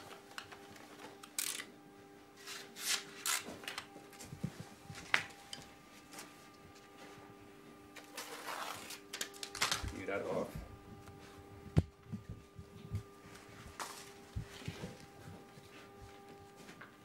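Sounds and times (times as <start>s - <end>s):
faint steady hum: 0.0s - 17.0s
tape rustling: 2.4s - 7.0s, 7.8s - 10.1s.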